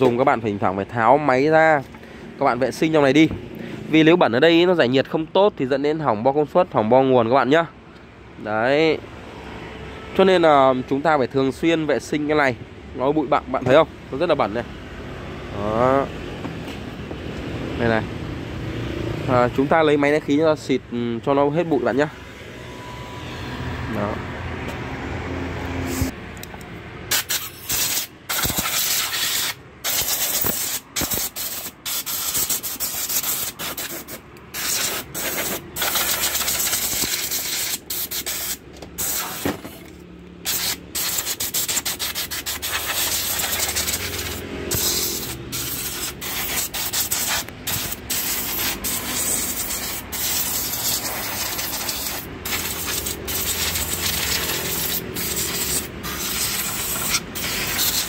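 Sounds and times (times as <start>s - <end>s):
compressed air blow gun hissing: 27.1s - 58.0s.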